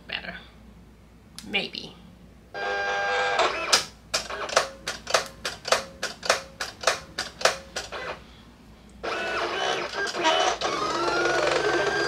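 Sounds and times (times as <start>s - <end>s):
printer motor whine: 2.6s - 4.7s, 7.8s - 8.2s, 9.0s - 12.0s.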